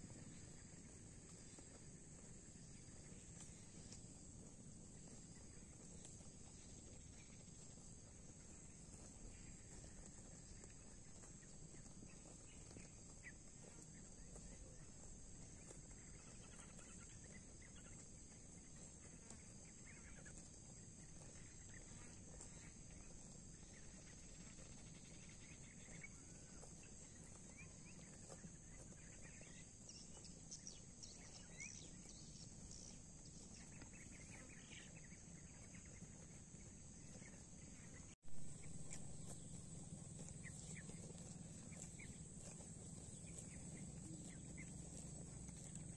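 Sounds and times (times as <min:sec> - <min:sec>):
faint bird chirps: 0:08.4 - 0:18.7, 0:21.1 - 0:45.9.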